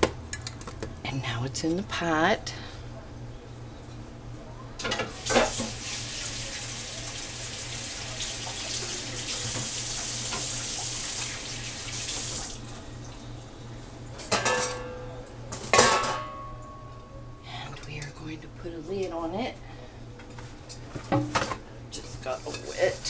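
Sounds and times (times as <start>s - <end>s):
tap water running: 5.0s - 13.2s
metal pot clattering: 14.3s - 15.0s, 15.6s - 16.5s.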